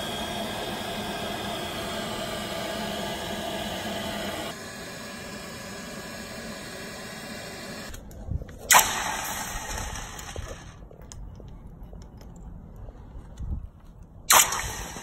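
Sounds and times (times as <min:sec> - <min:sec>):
air blower whirring and hissing: 0:00.0 - 0:08.0.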